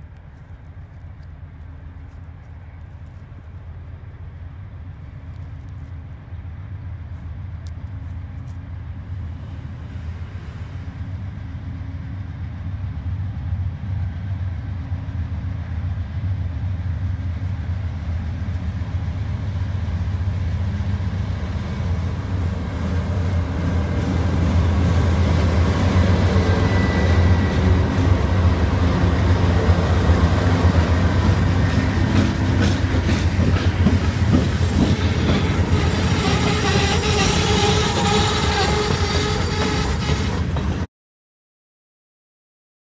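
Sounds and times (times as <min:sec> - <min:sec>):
locomotive engine rumble: 0:00.0 - 0:40.9
train wheels clattering over rails: 0:24.9 - 0:40.9.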